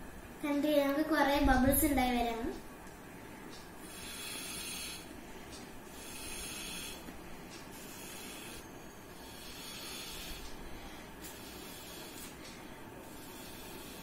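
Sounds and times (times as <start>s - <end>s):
hissing puffs of breath: 3.8s - 5.1s, 9.2s - 14.0s.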